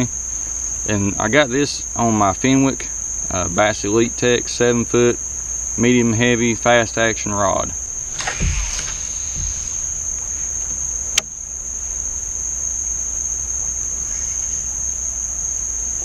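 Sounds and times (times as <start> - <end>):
insects droning: 0.0 - 16.0
sharp click: 11.1 - 11.4.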